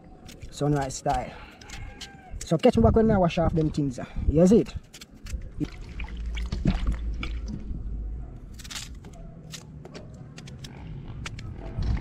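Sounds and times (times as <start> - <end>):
water splash: 5.6 - 7.6.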